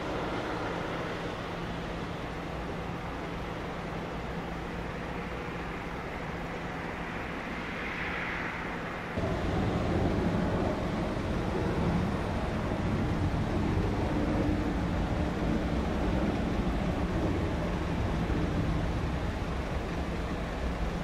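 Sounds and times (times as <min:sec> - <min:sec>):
jet engines rushing: 0:00.0 - 0:21.0.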